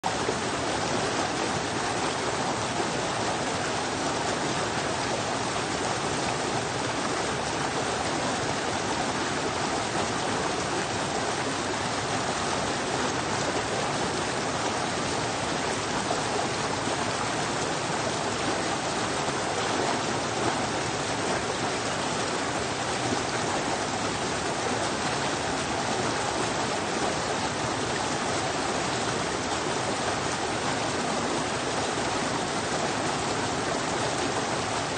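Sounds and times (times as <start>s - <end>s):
stream rushing over rocks: 0.0s - 34.9s.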